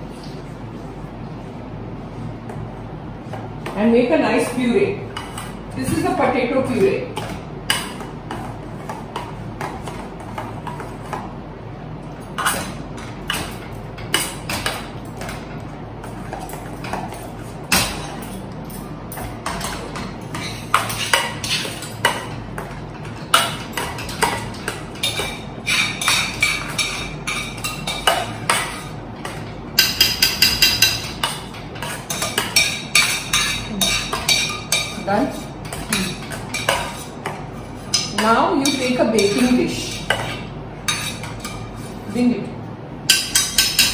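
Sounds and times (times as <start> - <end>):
whisk clinking against metal pot: 23.3 - 37.1, 43.1 - 43.9.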